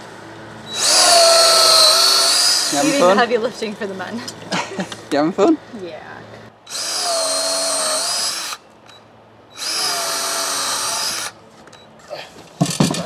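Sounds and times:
cordless drill boring into wood: 0:00.7 - 0:03.0, 0:06.7 - 0:08.6, 0:09.6 - 0:11.4.

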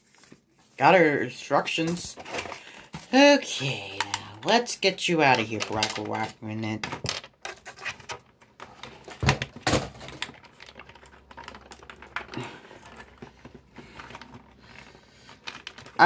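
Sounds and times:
toy packaging clicks and rustles: 0:01.7 - 0:03.1, 0:03.8 - 0:16.0.

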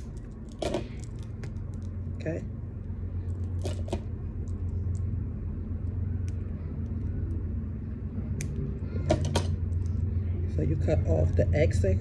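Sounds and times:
beads clicking: 0:00.0 - 0:02.0
low rumble: 0:00.0 - 0:12.0.

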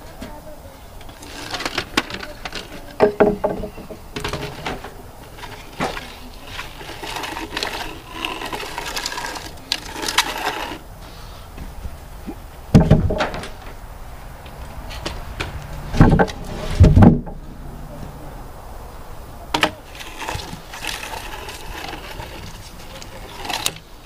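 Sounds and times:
wooden beams knocking and scraping: 0:01.0 - 0:10.8, 0:11.5 - 0:18.2, 0:19.5 - 0:24.0
loud wooden clunk: 0:01.4 - 0:05.0, 0:12.7 - 0:13.8, 0:15.0 - 0:17.5
heavy wooden thud: 0:03.0 - 0:05.0, 0:12.7 - 0:13.8, 0:15.1 - 0:17.5.

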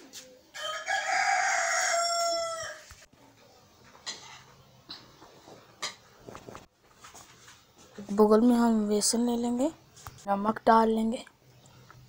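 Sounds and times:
rooster crowing: 0:00.5 - 0:02.9.

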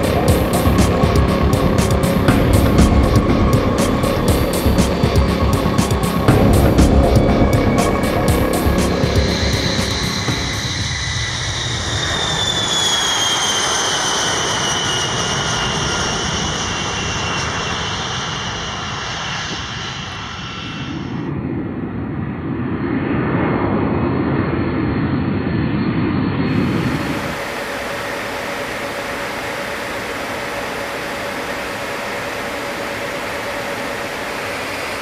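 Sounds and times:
high turbine whine: 0:00.0 - 0:22.4, 0:26.3 - 0:35.0
jet engines roaring: 0:00.0 - 0:23.4, 0:24.0 - 0:35.0.

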